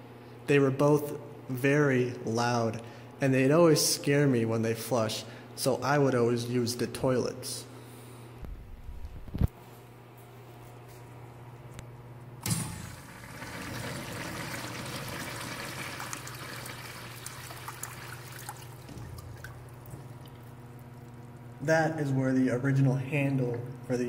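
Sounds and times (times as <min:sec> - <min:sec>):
water rushing through urinal: 0:12.4 - 0:21.0.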